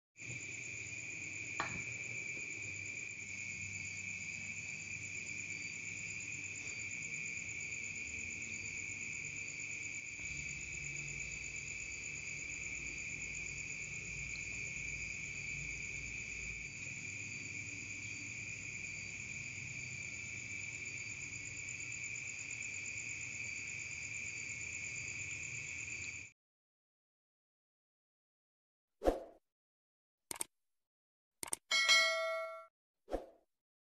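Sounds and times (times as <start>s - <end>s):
crickets chirping: 0.2s - 26.3s.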